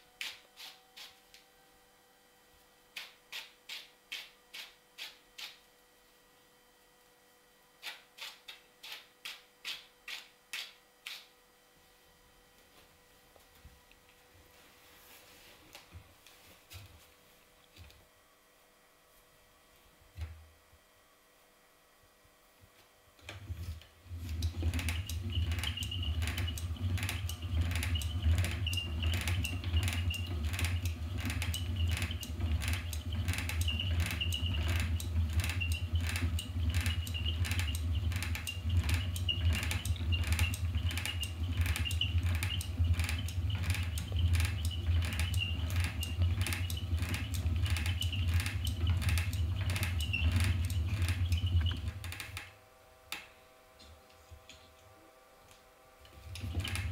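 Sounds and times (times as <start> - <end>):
spinning wheel clacking: 24.4 - 52.4.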